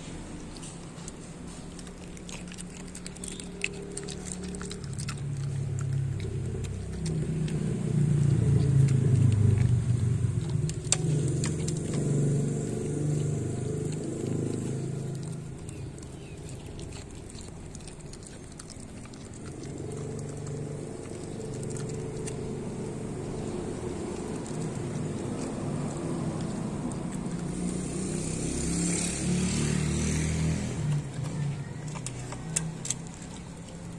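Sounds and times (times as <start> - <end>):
dog chewing and licking from metal bowl: 0.0 - 29.0, 30.8 - 33.9.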